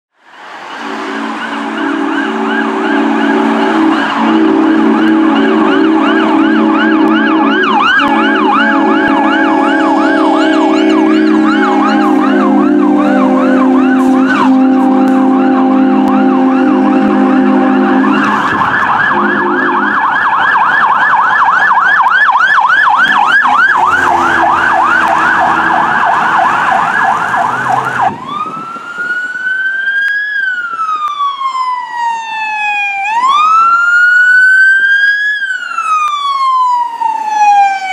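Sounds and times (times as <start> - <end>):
air horn blasts: 0.7 - 20.7, 22.9 - 28.3
electronic siren yelp and wail: 0.7 - 37.9.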